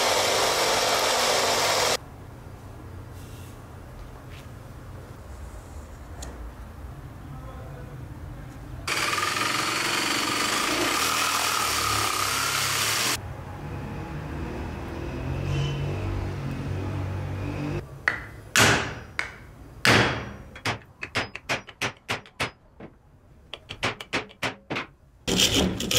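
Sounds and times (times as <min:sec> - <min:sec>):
jigsaw cutting wood: 0:00.0 - 0:02.0, 0:08.9 - 0:13.2.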